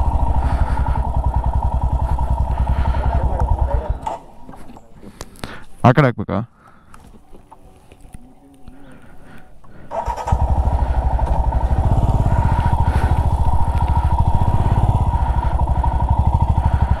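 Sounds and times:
motorcycle engine pulling away: 0.0 - 4.3, 9.9 - 17.0.

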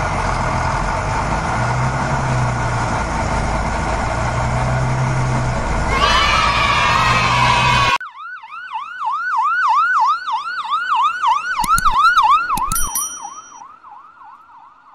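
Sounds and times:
heavy vehicle engine running: 0.0 - 8.0
ambulance siren: 3.8 - 12.8, 13.6 - 14.9
sharp clicks: 11.6 - 13.3.

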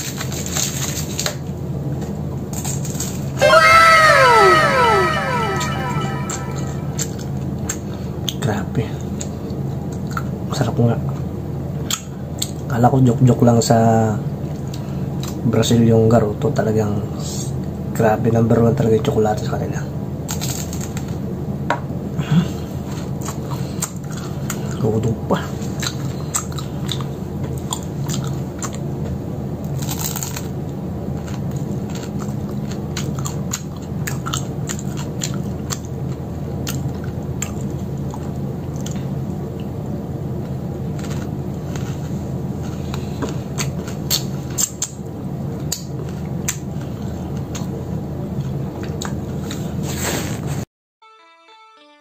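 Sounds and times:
quiet music: 3.4 - 7.2.

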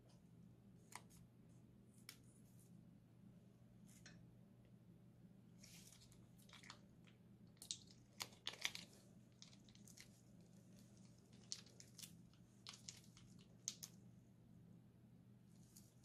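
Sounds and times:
foil piping bag crinkling: 7.6 - 14.0.

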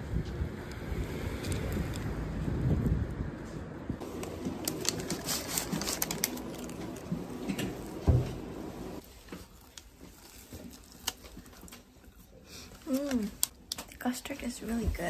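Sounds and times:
biting and chewing: 0.6 - 3.0, 4.0 - 8.3, 9.0 - 14.0
paper wrapper crinkling: 4.0 - 8.0, 9.0 - 14.0.

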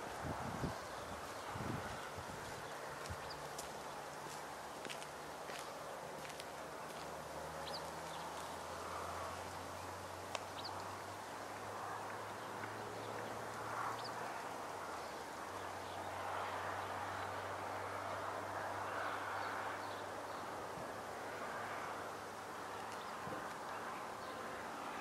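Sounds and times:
bird chirps: 10.5 - 10.8.

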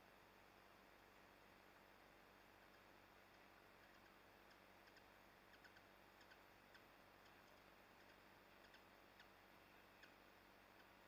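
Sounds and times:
faint high ticks: 2.5 - 11.0.

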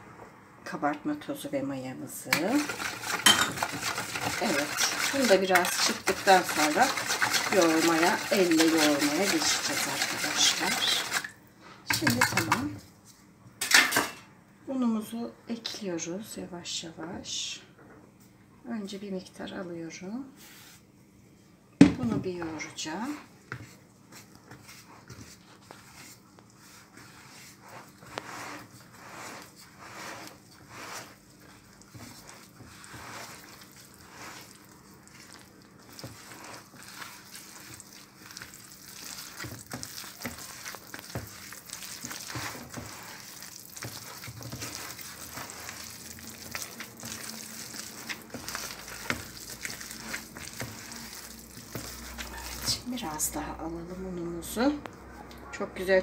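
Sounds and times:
hand kneading wet dough: 2.2 - 12.9, 22.3 - 55.2.

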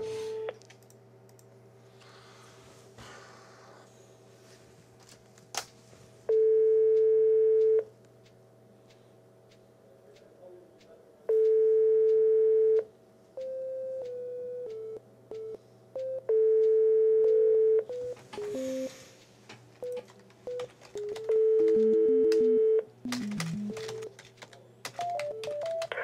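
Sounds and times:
telephone ringback tone: 0.0 - 0.5, 6.3 - 7.8, 16.3 - 19.0, 19.8 - 24.1.

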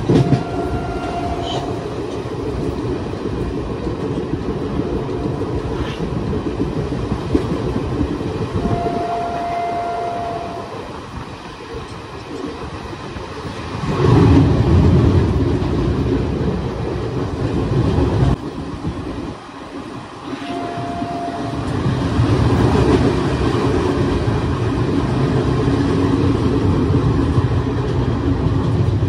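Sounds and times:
train wheels rumbling on track: 0.0 - 29.0
wind rushing over microphone: 0.0 - 29.0
short steady tone: 20.3 - 21.7.

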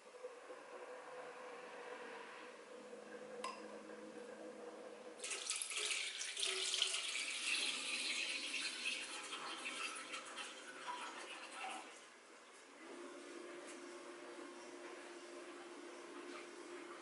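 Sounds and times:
liquid trickling into saucepan: 5.2 - 12.1.

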